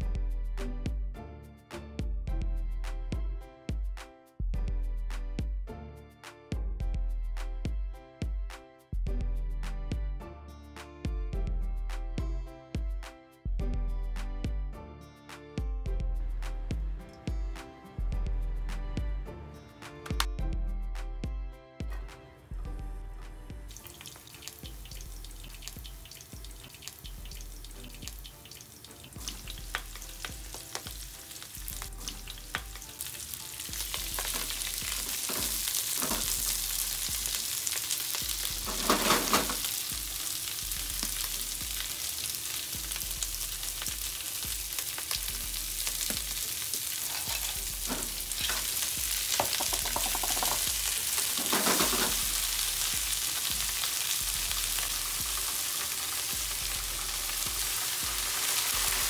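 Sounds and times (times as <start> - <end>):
food sizzling in oil: 23.7 - 59.0.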